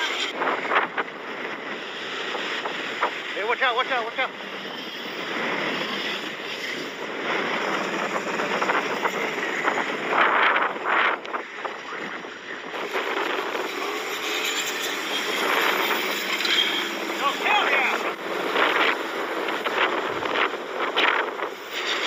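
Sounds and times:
wind buffeting microphone: 0.0s - 3.6s, 4.2s - 22.0s
truck engine under load: 12.4s - 22.0s.

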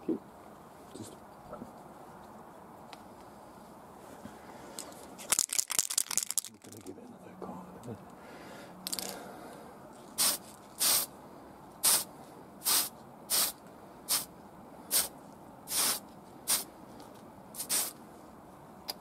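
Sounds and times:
aerosol spray hissing: 10.2s - 11.1s, 11.8s - 14.3s, 14.9s - 15.1s, 15.7s - 16.7s, 17.6s - 18.0s.

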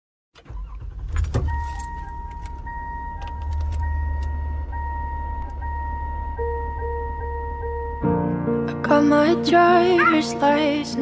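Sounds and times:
car engine rumble: 0.4s - 11.0s
car warning chime: 1.4s - 8.4s
lower pulsing chime tone: 1.5s - 9.0s.

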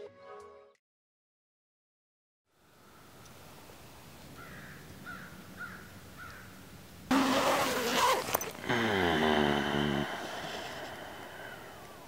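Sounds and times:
crow cawing: 4.4s - 6.5s.

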